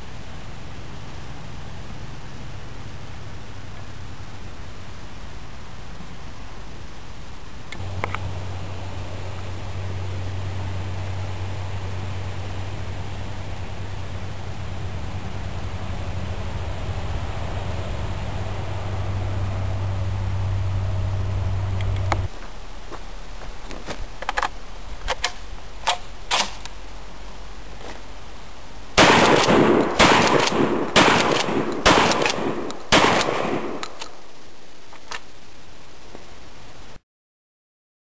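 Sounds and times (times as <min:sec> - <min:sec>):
shotgun shots: 0:25.9 - 0:26.6, 0:29.0 - 0:34.1
shotgun pump action: 0:29.0 - 0:34.2
sharp clicks: 0:29.2 - 0:34.2.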